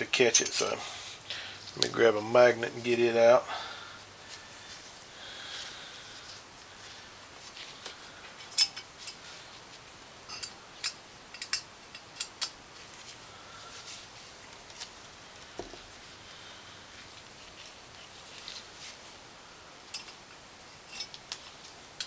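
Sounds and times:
metal nuts and washers clinking: 0:00.2 - 0:00.8, 0:08.4 - 0:09.2, 0:10.3 - 0:12.6, 0:19.9 - 0:21.2.

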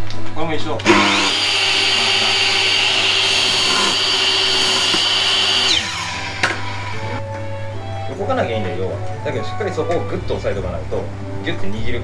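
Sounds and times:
miter saw whining: 0:00.8 - 0:07.2
saw motor winding down: 0:00.8 - 0:07.2.

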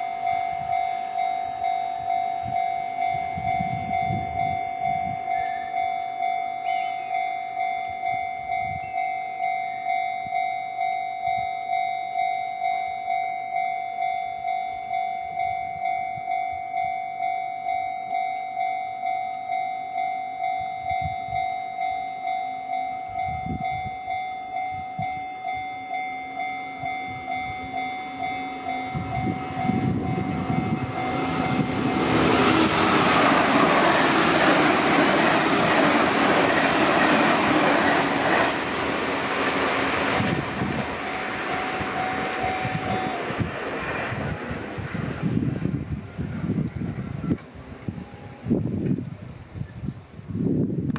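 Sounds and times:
level crossing bell ringing: 0:00.0 - 0:35.8, 0:40.1 - 0:43.4
train passing on rails: 0:00.0 - 0:50.9.

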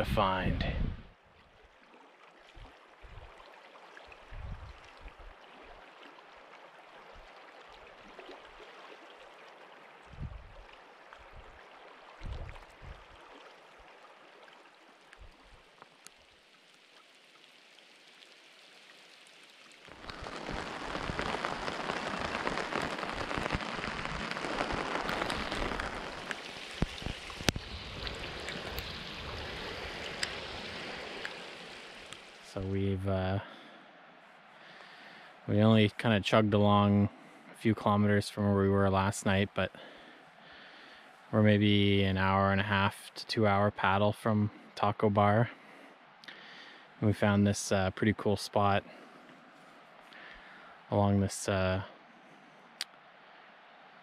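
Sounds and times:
raindrops ticking on a surface: 0:02.4 - 0:32.7
rain falling: 0:04.1 - 0:36.5.

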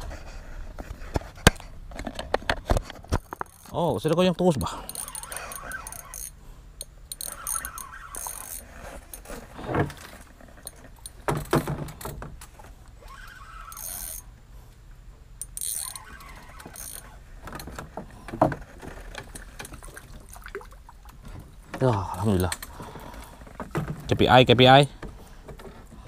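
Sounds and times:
fishing reel cranking: 0:04.7 - 0:09.2, 0:13.0 - 0:14.3, 0:15.4 - 0:17.6
tackle knocking and rattling: 0:21.2 - 0:26.0.

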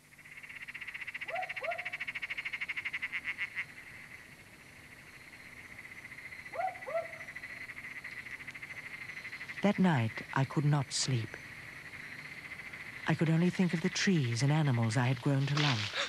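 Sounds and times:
short rising frog calls: 0:00.0 - 0:09.7
frogs trilling: 0:00.0 - 0:16.0.

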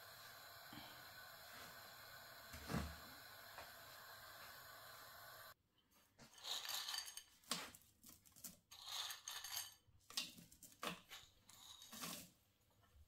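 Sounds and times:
wooden spatula scraping a pan: 0:11.2 - 0:12.4.

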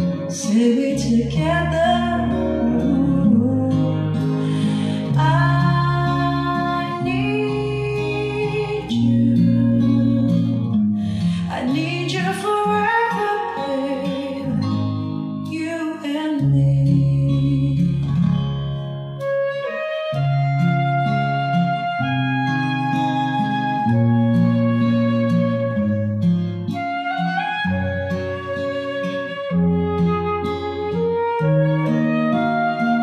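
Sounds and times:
person singing: 0:00.0 - 0:14.9, 0:15.5 - 0:18.2
guitar: 0:00.0 - 0:33.0.

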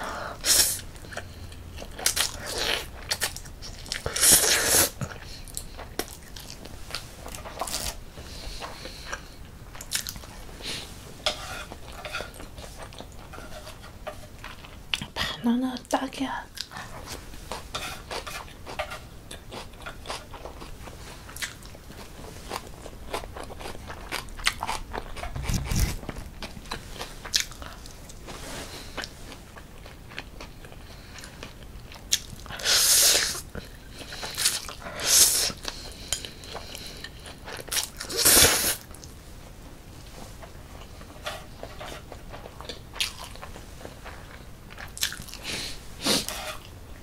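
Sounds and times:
slurping noodles: 0:04.1 - 0:05.0
chewing with wet mouth clicks: 0:08.7 - 0:10.3, 0:21.3 - 0:27.8, 0:29.8 - 0:32.6, 0:42.3 - 0:45.4.

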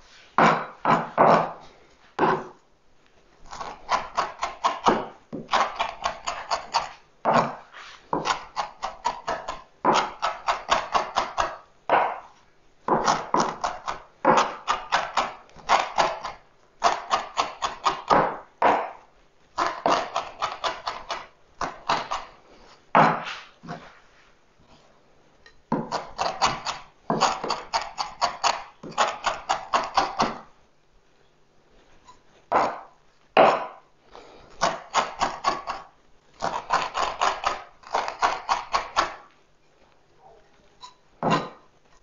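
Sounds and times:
knife chopping on wooden board: 0:00.4 - 0:01.6, 0:02.2 - 0:02.6, 0:03.5 - 0:23.9, 0:25.7 - 0:30.5, 0:32.5 - 0:33.8, 0:34.5 - 0:39.3, 0:41.2 - 0:41.6.

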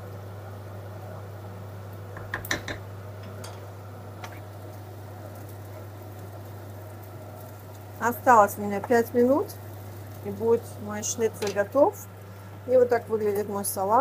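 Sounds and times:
steady low hum: 0:00.0 - 0:14.0
utensils clicking against cookware: 0:02.2 - 0:02.8.

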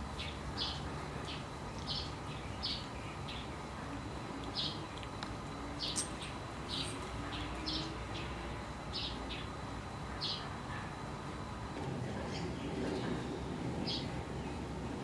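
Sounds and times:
small songbirds chirping: 0:00.0 - 0:03.7, 0:04.4 - 0:05.1, 0:05.8 - 0:09.6, 0:10.2 - 0:10.6, 0:12.3 - 0:14.7
outdoor background hiss: 0:00.0 - 0:15.0.

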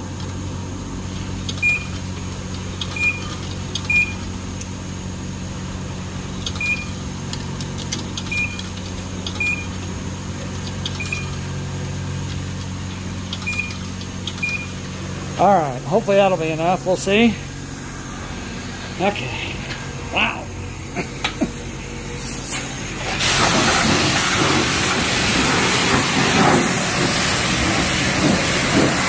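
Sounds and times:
steady low hum: 0:00.0 - 0:29.0
scattered clicks: 0:01.4 - 0:04.7, 0:06.4 - 0:09.8, 0:10.6 - 0:11.3, 0:13.3 - 0:14.7
pay station beeps: 0:01.5 - 0:02.0, 0:02.8 - 0:04.3, 0:06.5 - 0:07.0, 0:08.2 - 0:08.7, 0:09.3 - 0:09.8, 0:10.9 - 0:11.4, 0:13.4 - 0:14.8.

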